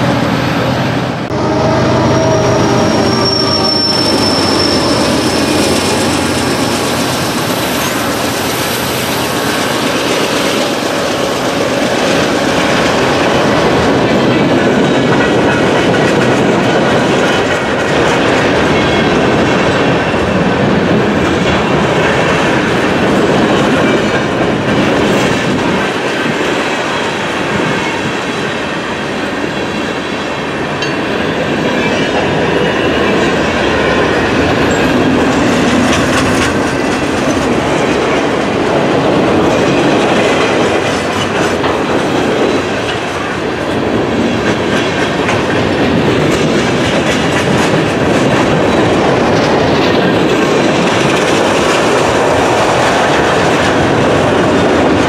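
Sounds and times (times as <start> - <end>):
freight train wheels clicking on joints: 2.1 - 55.0.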